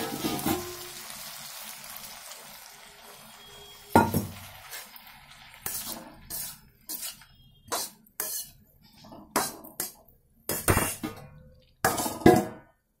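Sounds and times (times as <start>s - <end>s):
metal spatula scraping pan: 0.0s - 0.8s, 3.1s - 12.6s
pan clanking on stove: 0.0s - 0.8s, 4.0s - 4.4s, 10.5s - 12.7s
frying sizzle: 0.0s - 12.8s.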